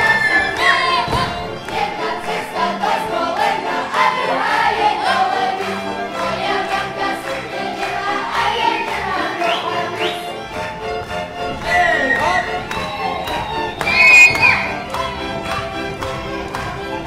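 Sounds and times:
children singing: 0:00.0 - 0:10.5
folk band with fiddles: 0:00.0 - 0:17.0.

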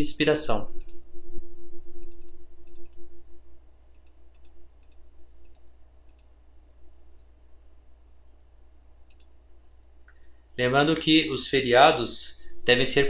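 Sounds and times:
faint steady hum: 0:00.0 - 0:13.0
computer mouse clicks: 0:01.9 - 0:03.0, 0:03.9 - 0:06.3, 0:09.1 - 0:09.4.

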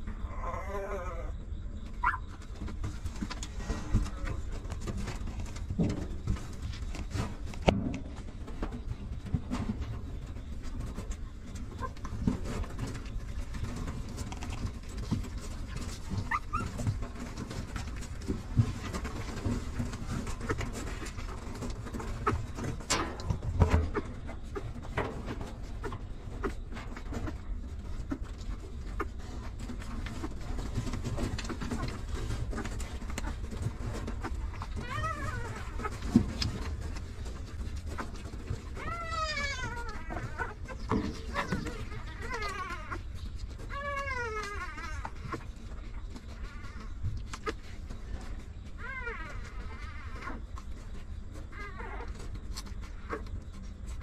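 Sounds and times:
shuffling: 0:01.8 - 0:54.0
puppy high squeaks: 0:02.0 - 0:02.2, 0:16.2 - 0:16.8, 0:34.6 - 0:36.0, 0:43.7 - 0:45.4, 0:48.8 - 0:50.4
puppies suckling clicks: 0:28.0 - 0:54.0.

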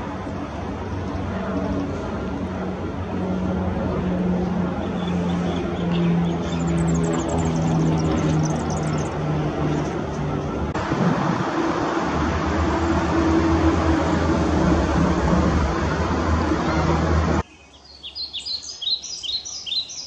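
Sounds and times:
steady low rumble: 0:00.0 - 0:17.4
small bird chirps: 0:06.0 - 0:09.2, 0:17.4 - 0:20.0.

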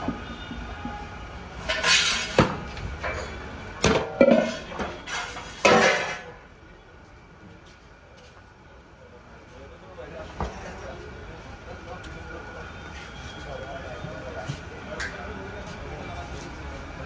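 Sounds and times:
metal pots and lids clanking: 0:01.6 - 0:06.4.

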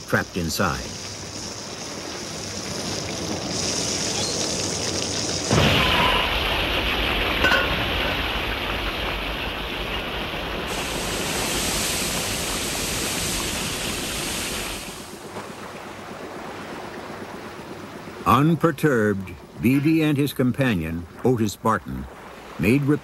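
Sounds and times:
high-pressure water jet hissing: 0:10.6 - 0:15.1.

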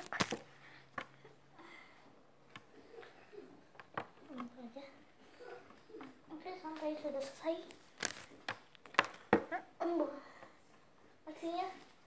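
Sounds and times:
child's wordless vocal sounds: 0:09.6 - 0:10.6.

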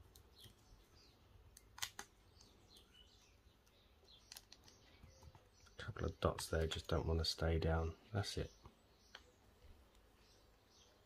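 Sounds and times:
tape peeling crinkling: 0:01.5 - 0:04.8.

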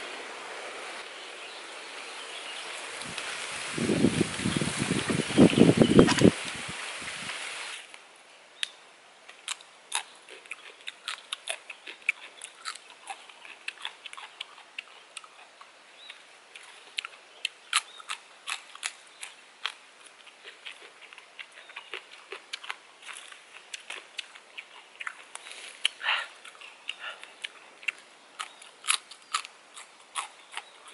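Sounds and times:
pea pods snapping: 0:27.3 - 0:30.9.

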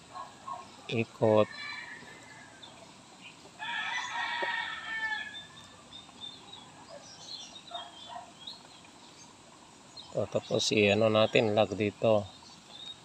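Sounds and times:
faint bird chirps: 0:00.1 - 0:13.0
rooster crowing: 0:01.3 - 0:02.8, 0:03.6 - 0:05.8.

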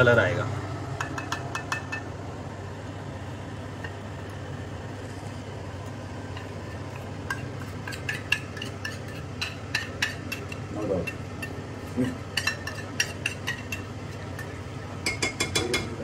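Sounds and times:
steady low hum: 0:00.0 - 0:16.0
metal spoon clinking in steel bowl: 0:07.2 - 0:15.9.

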